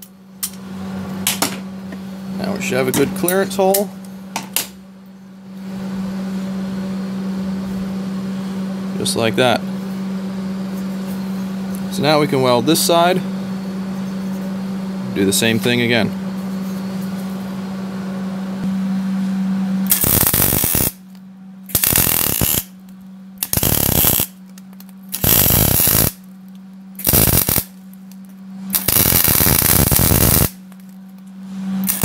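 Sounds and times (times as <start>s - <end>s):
welder arc crackling: 19.9s - 21.0s, 21.7s - 31.0s.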